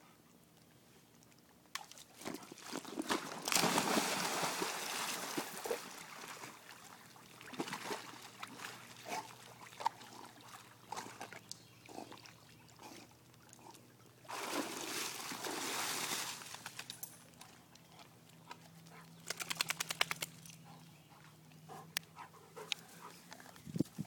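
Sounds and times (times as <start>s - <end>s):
dog splashing into pool: 2.6s - 6.5s, 14.3s - 16.7s.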